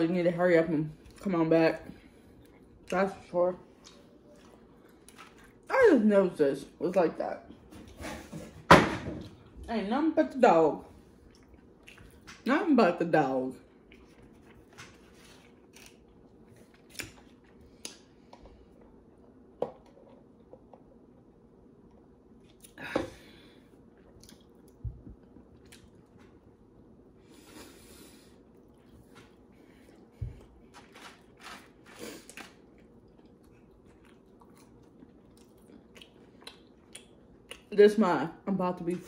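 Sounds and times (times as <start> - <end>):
close-up chewing: 13.7 - 19.0, 23.8 - 26.7, 28.4 - 37.7.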